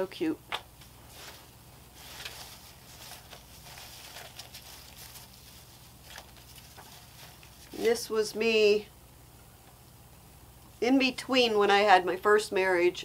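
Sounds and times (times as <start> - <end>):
paper rustling: 1.0 - 8.1.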